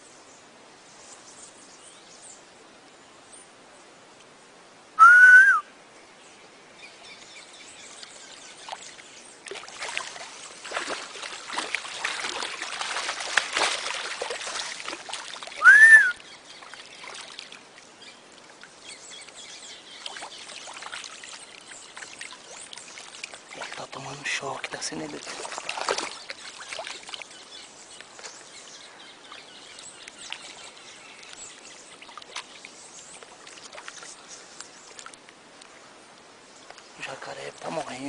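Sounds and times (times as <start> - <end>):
short rising and falling whistles: 5.0 - 5.7, 15.6 - 16.2
water splashing and trickling: 6.8 - 38.0.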